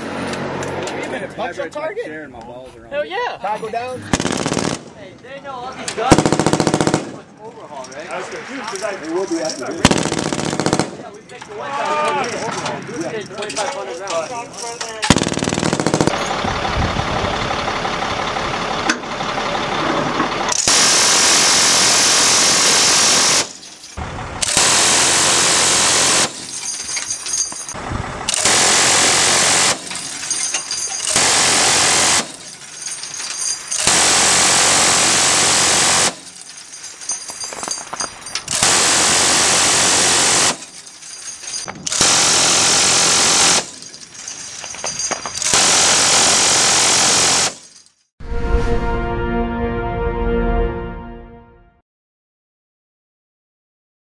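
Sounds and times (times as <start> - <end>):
minigun firing bursts: 4.1 - 5.0, 6.1 - 7.2, 9.8 - 11.0, 15.1 - 16.2, 24.4 - 26.4, 28.3 - 29.9, 31.0 - 32.4, 33.7 - 36.2, 38.5 - 40.6, 41.8 - 43.7, 45.4 - 47.6.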